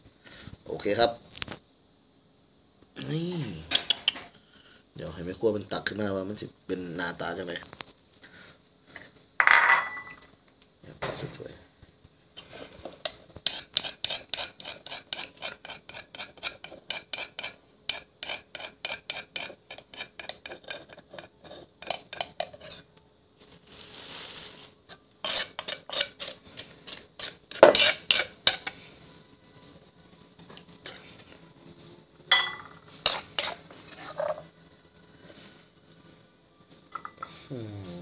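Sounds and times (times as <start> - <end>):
metal spoon clinking in mortar: 9.4 - 10.2, 32.3 - 33.6, 36.9 - 37.3.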